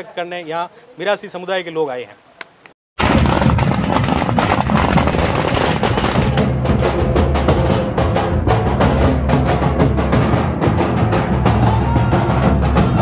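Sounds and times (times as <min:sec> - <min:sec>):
firecrackers crackling: 0:03.0 - 0:06.7
dhol drums beating: 0:04.1 - 0:13.0.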